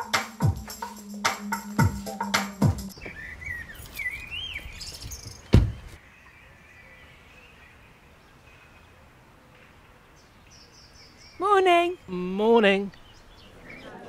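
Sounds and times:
faint outdoor background noise: 0:00.0 - 0:14.0
birds chirping: 0:02.9 - 0:14.0
loud low thump: 0:05.5 - 0:05.9.

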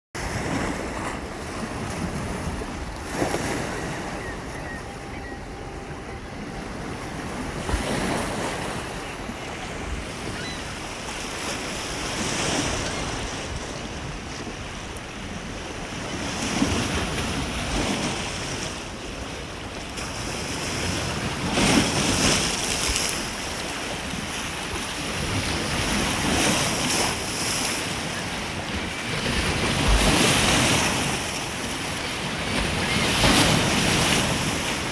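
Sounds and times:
waves breaking on pebbly shore: 0:20.0 - 0:34.9.

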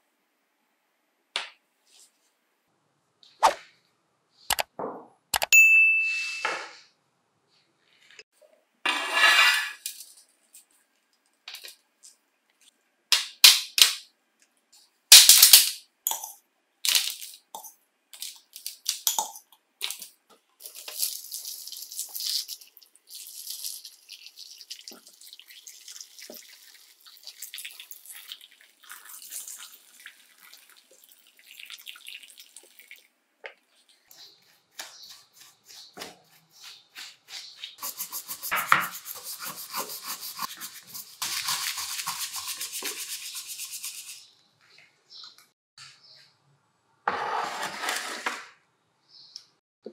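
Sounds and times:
water pouring and splashing: 0:20.6 - 0:33.1
brush scrubbing plastic: 0:33.7 - 0:44.3.

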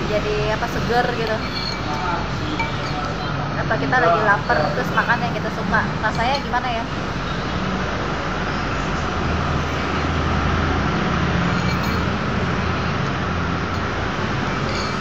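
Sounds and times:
steady background roar: 0:00.0 - 0:15.0.

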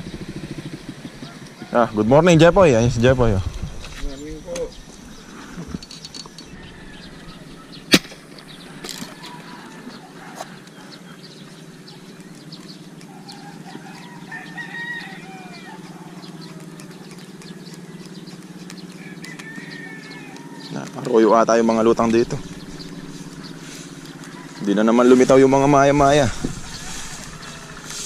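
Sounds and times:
steady low hum: 0:00.0 - 0:28.0
rooster crowing: 0:06.3 - 0:07.9, 0:08.5 - 0:11.1, 0:13.1 - 0:16.9, 0:18.9 - 0:28.0.

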